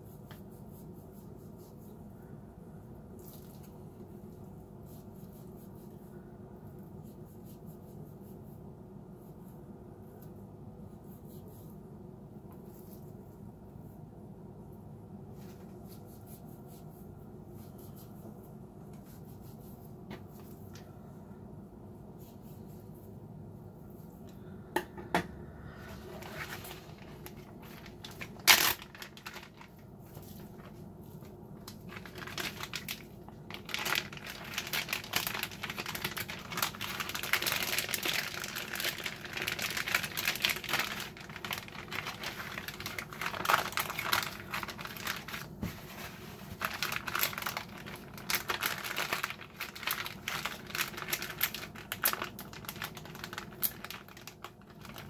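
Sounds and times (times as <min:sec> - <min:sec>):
plastic bag crinkling: 0:25.8 - 0:55.0.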